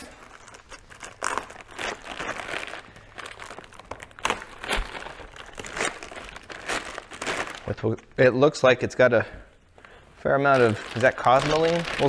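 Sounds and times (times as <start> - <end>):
waxed paper crinkling: 0.0 - 7.9, 10.3 - 12.0.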